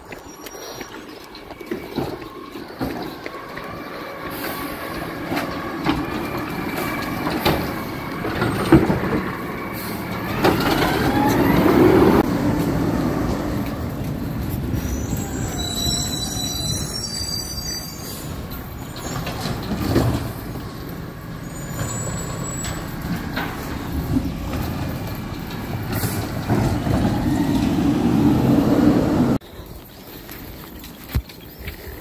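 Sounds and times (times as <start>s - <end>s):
garbage truck diesel engine: 1.9s - 29.4s.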